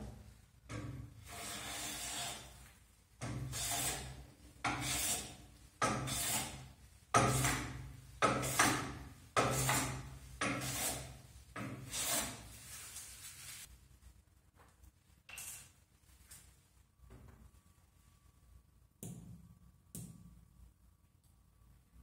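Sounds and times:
hand plane shaving wood: 0:04.8 - 0:05.3.

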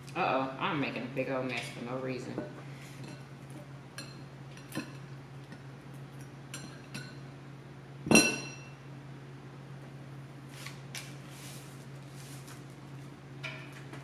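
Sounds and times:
glass bowl clinking: 0:08.1 - 0:08.7.

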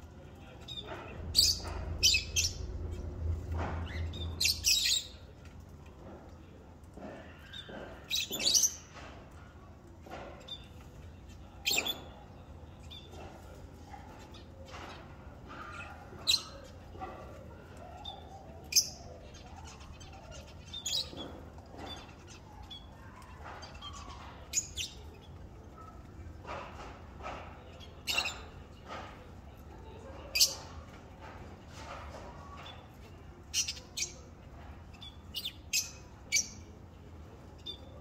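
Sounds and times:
parrots chirping and squawking: 0:00.6 - 0:05.2.

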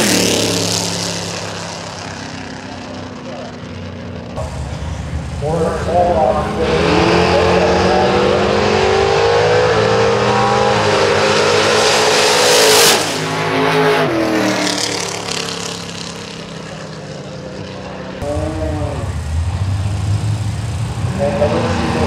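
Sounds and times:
car engine revving: 0:00.0 - 0:22.0
drag car engines at full throttle: 0:00.0 - 0:22.0.

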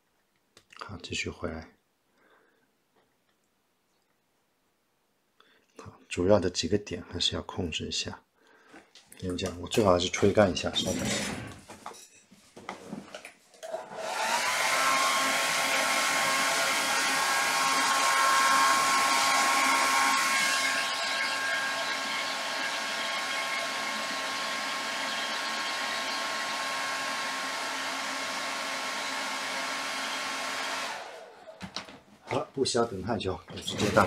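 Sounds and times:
hair dryer motor whine: 0:13.6 - 0:31.9.

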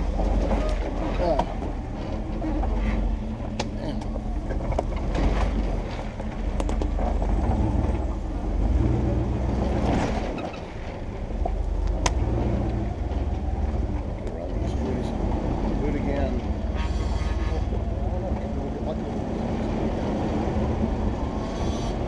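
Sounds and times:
vehicle knocking over rocks: 0:00.0 - 0:08.2
engine running at low speed: 0:00.0 - 0:22.0.

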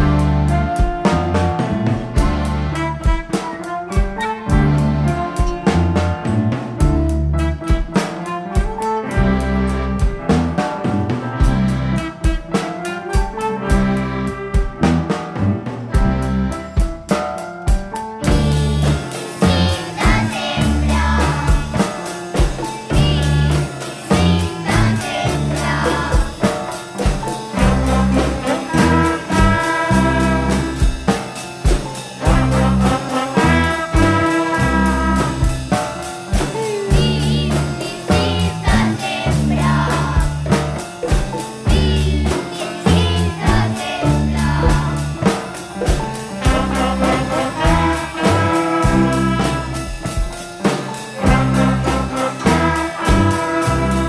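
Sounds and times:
children's ensemble playing a song: 0:00.0 - 0:54.0
steady drum beat: 0:00.0 - 0:54.0
voices singing: 0:18.2 - 0:30.9, 0:36.4 - 0:45.5, 0:46.4 - 0:49.8, 0:51.2 - 0:54.0.

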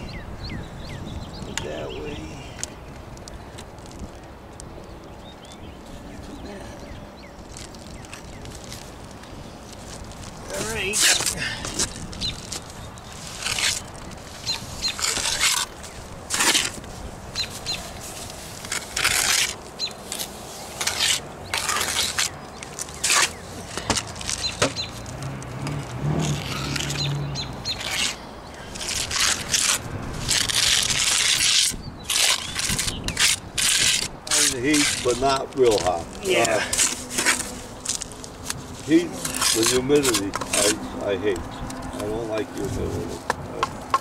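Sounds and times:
trowel scraping wet cement: 0:13.2 - 0:16.9, 0:18.2 - 0:23.4, 0:27.7 - 0:40.8.

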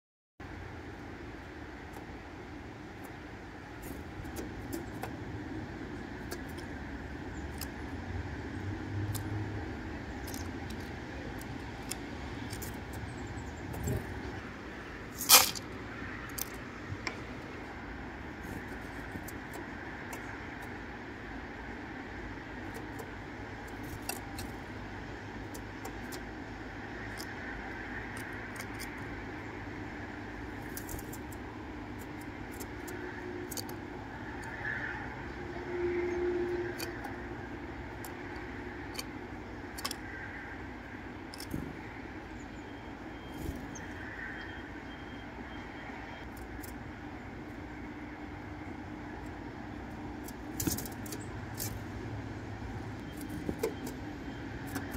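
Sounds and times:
steady background noise: 0:00.4 - 0:54.9.

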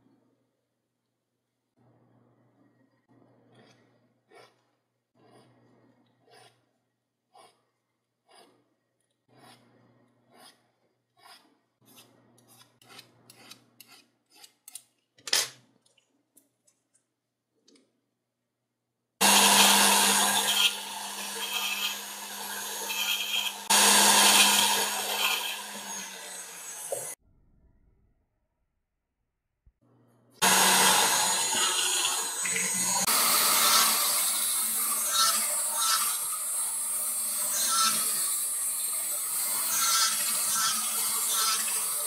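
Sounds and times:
hand file scraping metal: 0:03.4 - 0:14.9.

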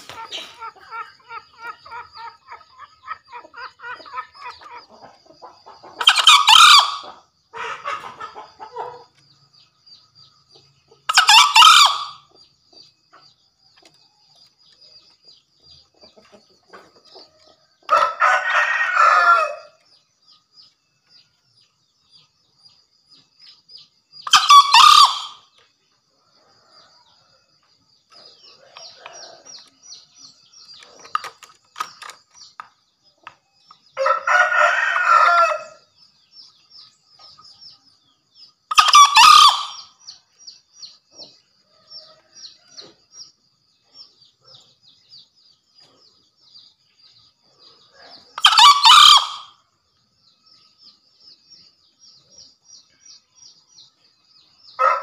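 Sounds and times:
junglefowl crowing: 0:00.0 - 0:05.2, 0:06.0 - 0:09.1, 0:11.1 - 0:12.3, 0:17.9 - 0:19.8, 0:24.2 - 0:25.4, 0:34.0 - 0:35.8, 0:38.7 - 0:40.0, 0:48.4 - 0:49.6, 0:54.8 - 0:55.0
soft bird calls: 0:00.0 - 0:55.0.

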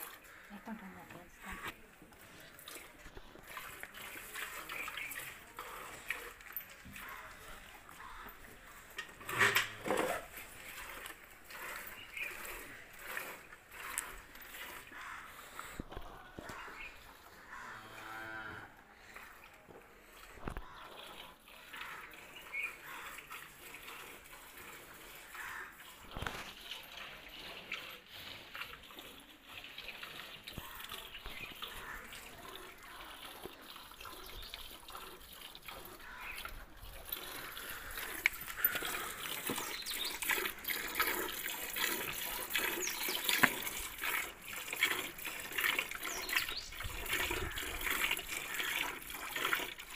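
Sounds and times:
milk hissing into steel bucket: 0:02.1 - 0:15.9, 0:19.0 - 0:49.9
cow mooing: 0:17.6 - 0:18.8.

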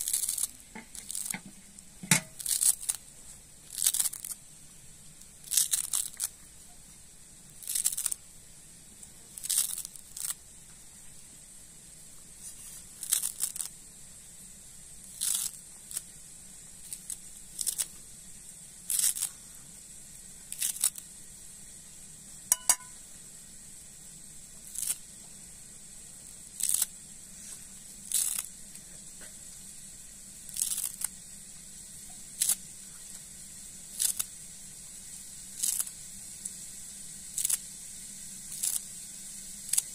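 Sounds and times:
sharp ringing click: 0:22.5 - 0:23.0.

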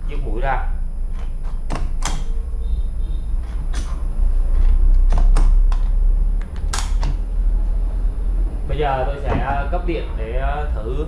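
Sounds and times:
steady low rumble: 0:02.2 - 0:11.0.

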